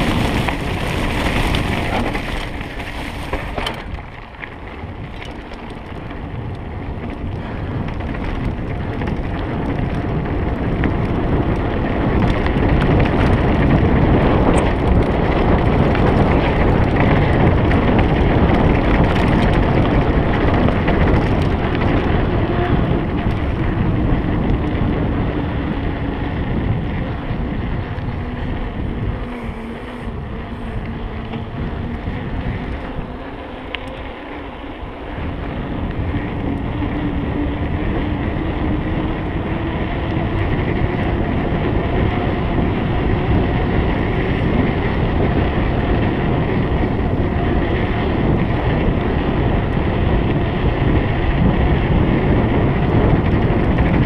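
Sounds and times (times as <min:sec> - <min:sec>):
mountain bike rumbling and rattling: 0:00.0 - 0:54.0
wind buffeting microphone: 0:00.0 - 0:54.0.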